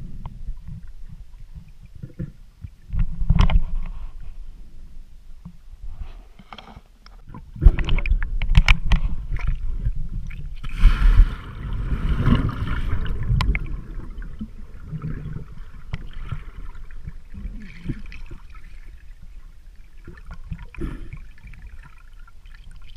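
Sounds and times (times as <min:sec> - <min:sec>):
sharp knocks underwater: 0:00.2 - 0:03.9, 0:07.3 - 0:17.2
rush of bubbles: 0:10.6 - 0:18.9
muffled underwater gurgling: 0:11.6 - 0:21.7.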